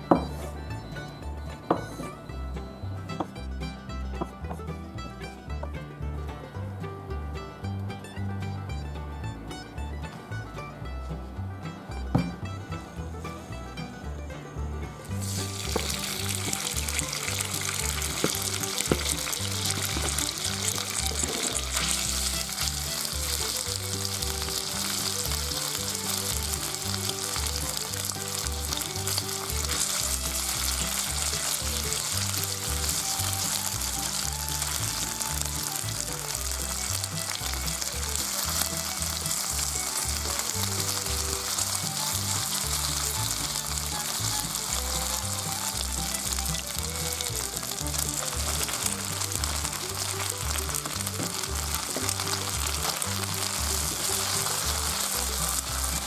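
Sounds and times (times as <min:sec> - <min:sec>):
chopsticks stirring in pan: 0:15.2 - 0:56.0
meat sizzling in hot oil: 0:15.2 - 0:56.0.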